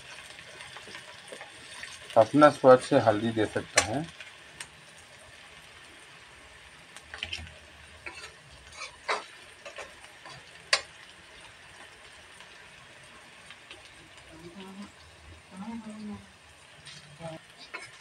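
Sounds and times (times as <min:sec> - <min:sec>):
faint oil sizzle: 0:00.0 - 0:18.0
spatula scraping metal pan: 0:08.0 - 0:10.4, 0:16.8 - 0:18.0.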